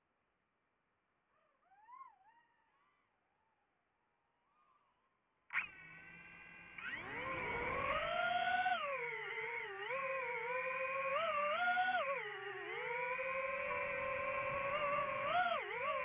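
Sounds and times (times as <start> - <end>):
drone motors and propellers whining: 5.5 - 16.0.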